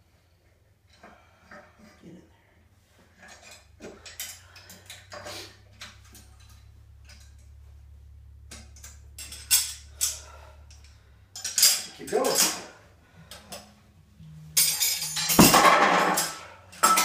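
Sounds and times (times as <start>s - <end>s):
steady low hum: 3.8s - 11.7s, 12.6s - 16.9s
metal weight plates clinking: 8.4s - 17.0s.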